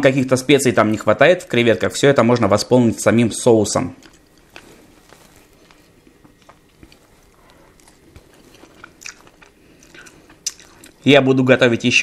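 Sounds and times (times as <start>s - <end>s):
person chewing shrimp: 3.9s - 11.1s
shrimp shell peeling crackles: 3.9s - 11.1s.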